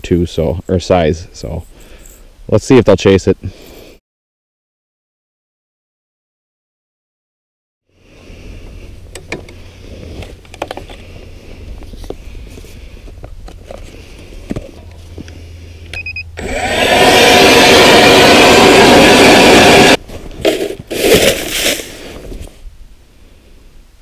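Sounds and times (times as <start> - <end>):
low hum: 8.0 - 20.8
gear handling clicks and knocks: 10.2 - 11.0
ice auger drilling through ice: 16.4 - 22.0.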